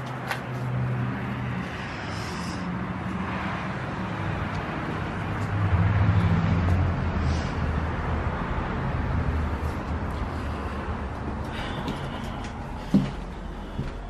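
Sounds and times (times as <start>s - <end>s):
traffic hum and rumble: 0.0s - 14.0s.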